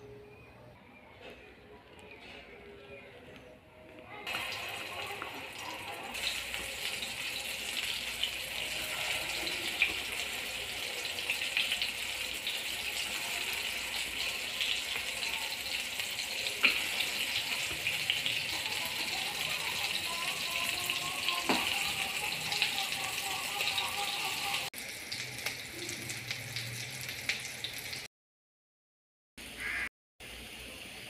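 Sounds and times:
patties sizzling in oil: 4.3s - 28.1s.

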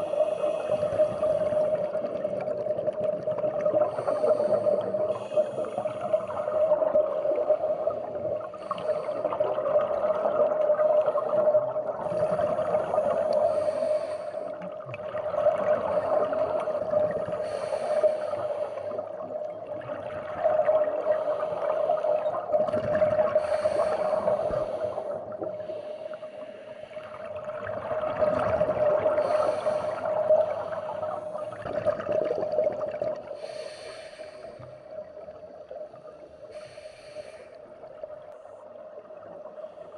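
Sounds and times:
exhaled bubbles gurgling: 0.0s - 26.2s, 26.8s - 37.2s
hissing inhalations: 3.8s - 6.4s, 12.0s - 14.6s, 15.9s - 19.2s, 23.4s - 27.2s, 29.1s - 31.6s, 33.3s - 34.8s, 36.4s - 37.8s.

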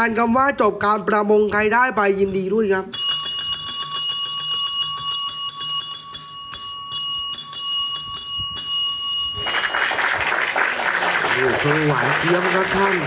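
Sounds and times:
bell ringing rapidly: 2.9s - 10.6s.

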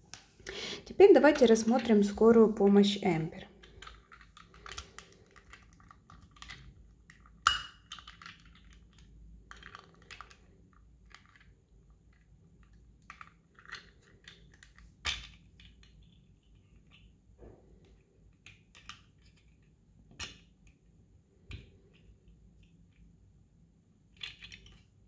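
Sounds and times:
plastic toy parts clicking: 3.6s - 11.6s, 12.6s - 17.2s, 18.3s - 20.8s, 24.1s - 24.9s.

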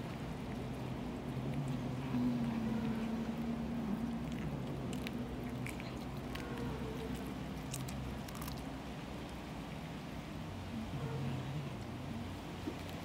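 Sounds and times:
cats chewing raw fish: 0.0s - 13.0s
steady low hum: 0.0s - 13.0s
teeth crunching through bone: 4.0s - 8.7s.

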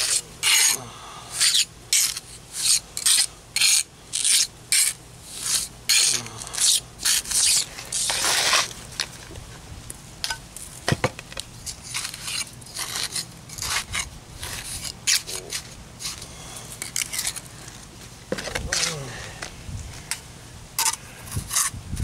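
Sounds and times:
trowel scraping cement mix: 0.0s - 8.8s, 11.7s - 17.4s, 20.8s - 21.7s.

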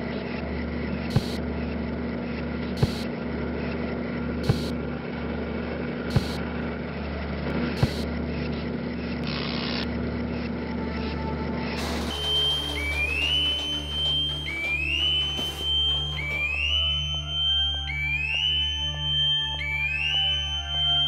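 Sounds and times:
factory machine hum: 0.0s - 20.8s
sharp knock: 11.8s - 16.9s.

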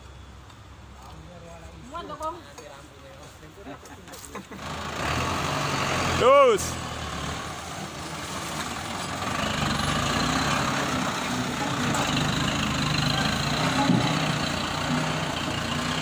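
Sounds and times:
diesel engine running: 4.6s - 16.0s.

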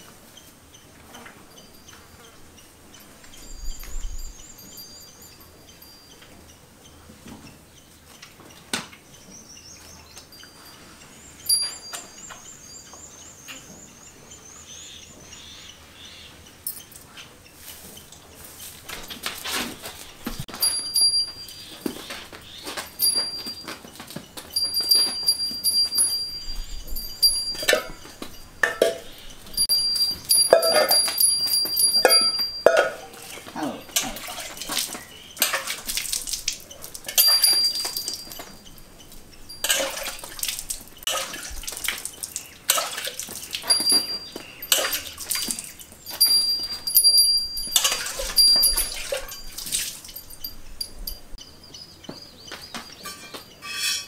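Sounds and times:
thin high tone: 24.6s - 34.1s.

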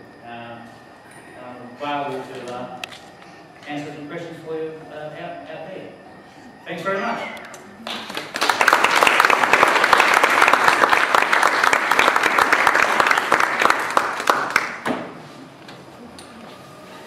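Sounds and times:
audience applauding: 7.8s - 14.9s.

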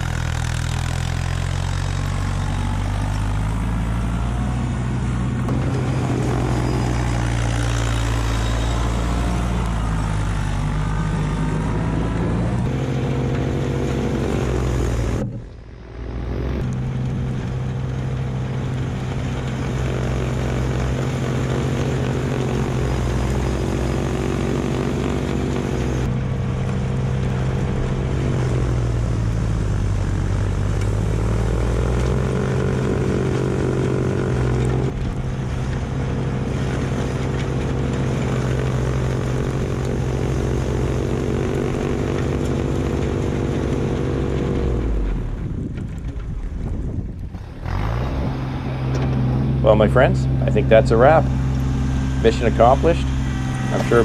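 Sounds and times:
tractor diesel engine running: 0.0s - 54.0s
snowblower throwing snow: 5.3s - 11.6s, 16.2s - 46.8s.

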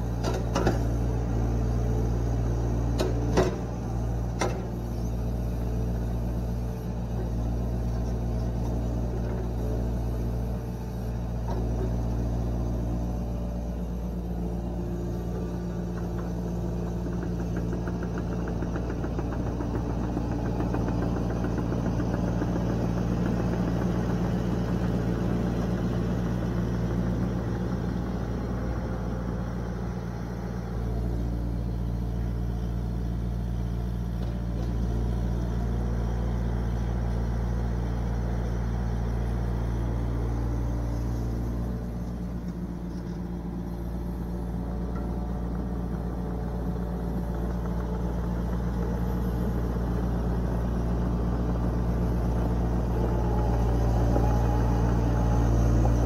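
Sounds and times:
diesel engine running: 0.0s - 56.0s.

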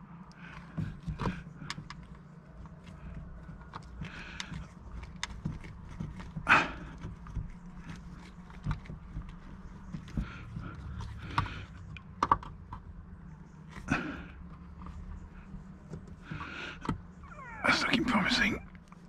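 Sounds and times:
rubber and plastic rubbing: 0.4s - 13.0s
rasping squeak: 16.2s - 18.8s.

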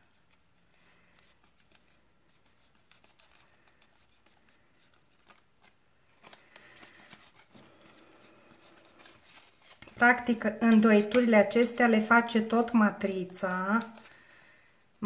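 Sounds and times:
cardstock rustling and crackling: 0.0s - 15.0s.

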